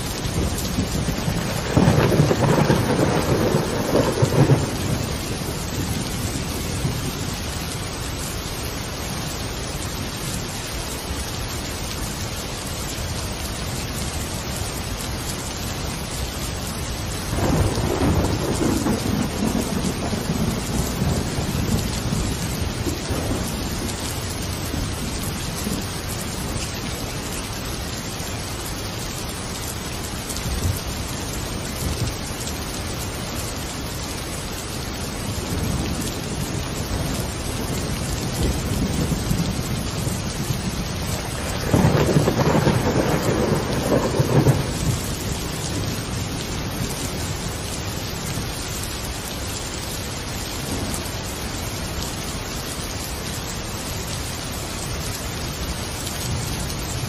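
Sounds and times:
steady rain: 0:00.0 - 0:57.0
rolling thunder: 0:00.2 - 0:07.2, 0:17.3 - 0:24.0, 0:35.4 - 0:47.4.

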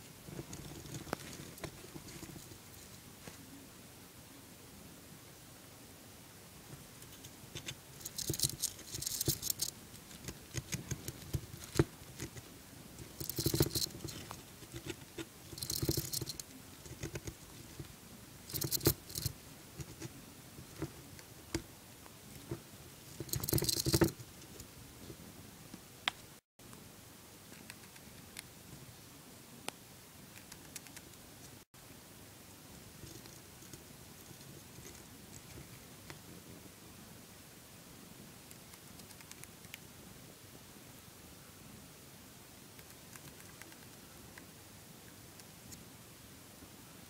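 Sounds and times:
hamster gnawing wood: 0:07.0 - 0:17.9, 0:18.5 - 0:21.6, 0:22.3 - 0:24.6, 0:32.9 - 0:36.2, 0:38.5 - 0:39.8, 0:42.8 - 0:44.0.

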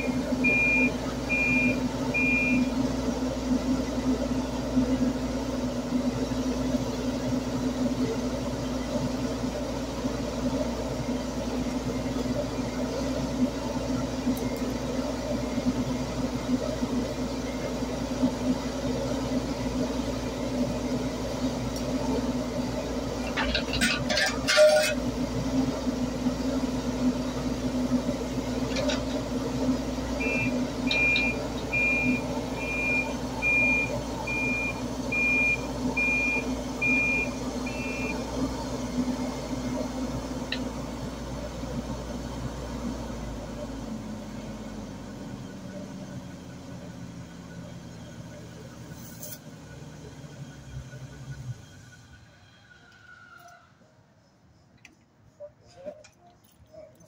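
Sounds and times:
warning alarm beeping: 0:00.0 - 0:02.7, 0:30.2 - 0:38.2
diesel engine running: 0:00.0 - 0:53.0.

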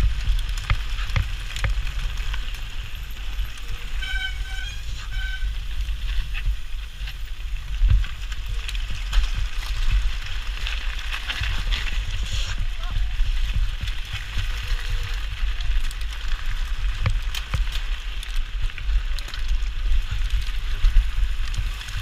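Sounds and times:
bike knocks and rattles: 0:00.0 - 0:02.4, 0:12.8 - 0:18.1
bike tyres on gravel: 0:00.0 - 0:22.0.

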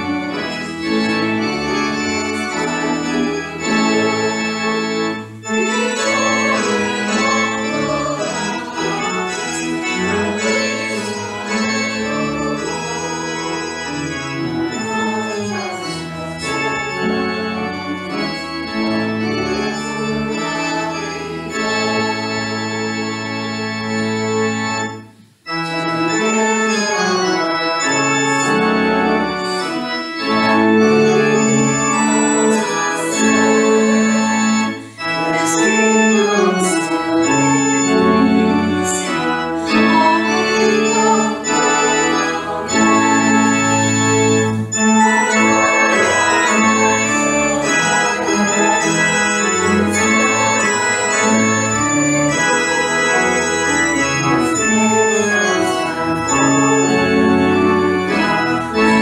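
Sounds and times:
organ chords: 0:00.0 - 0:59.0.

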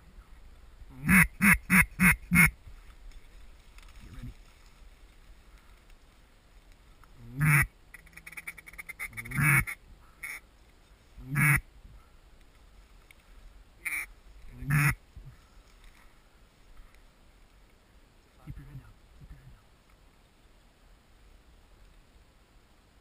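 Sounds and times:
duck call clucks: 0:01.0 - 0:02.5, 0:07.4 - 0:10.4, 0:11.3 - 0:11.6, 0:13.8 - 0:14.1, 0:14.7 - 0:15.0
duck call quacks: 0:01.0 - 0:02.5, 0:07.4 - 0:10.4, 0:11.3 - 0:11.6, 0:13.8 - 0:14.1, 0:14.7 - 0:15.0.

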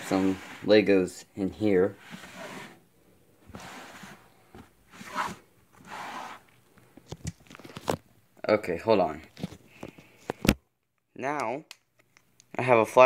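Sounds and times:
fabric rustling and scraping: 0:00.0 - 0:00.9, 0:01.8 - 0:02.8, 0:03.5 - 0:06.5.

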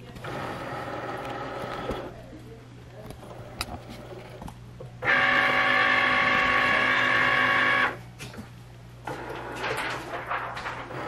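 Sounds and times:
cutting machine motors whining: 0:05.0 - 0:08.0.

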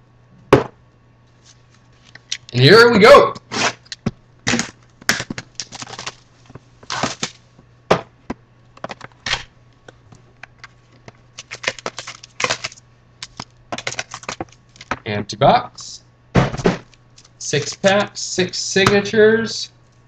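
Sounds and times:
low steady hum: 0:00.0 - 0:20.0
plastic wrap crinkling: 0:04.5 - 0:07.4, 0:10.6 - 0:14.9
cardboard rustling: 0:10.8 - 0:14.9.

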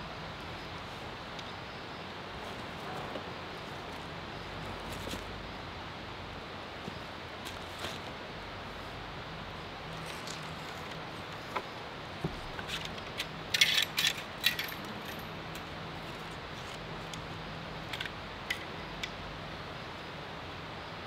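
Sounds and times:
hand tools clicking and rattling: 0:12.5 - 0:17.2.

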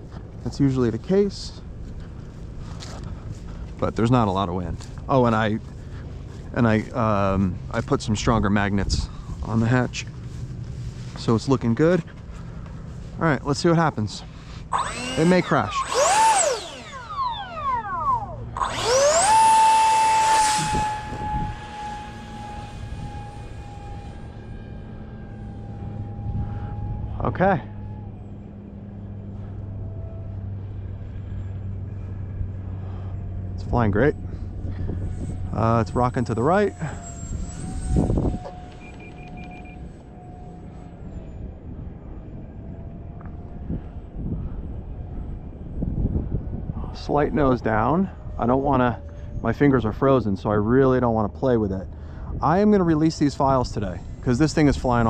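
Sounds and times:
wind buffeting microphone: 0:00.0 - 0:13.2, 0:13.9 - 0:27.2, 0:33.2 - 0:50.7
electric ducted fan whine: 0:00.0 - 0:55.0
short electronic beeps: 0:38.4 - 0:40.0.

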